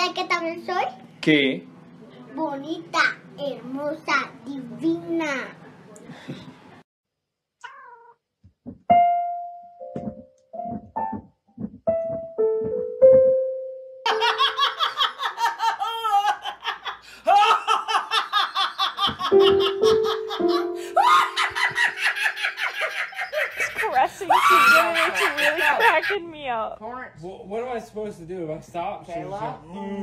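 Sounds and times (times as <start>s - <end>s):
keyboard notes: 8.9s - 15.0s, 19.3s - 22.6s
woman laughing: 14.1s - 26.3s.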